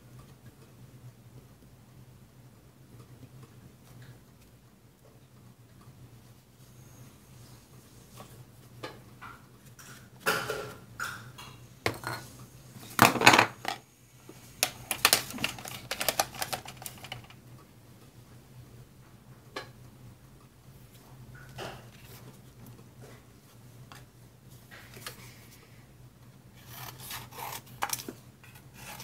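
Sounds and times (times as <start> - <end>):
clatter on wooden tabletop: 13.0 - 13.8.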